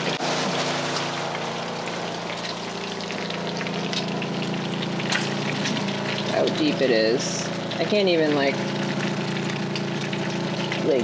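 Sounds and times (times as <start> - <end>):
small motor humming: 0.0 - 11.0
bacon sizzling in a frying pan: 1.2 - 11.0.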